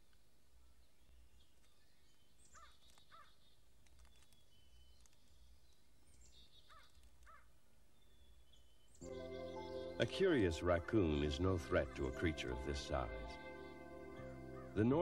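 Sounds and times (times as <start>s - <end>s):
short bird calls: 1.7s - 8.7s.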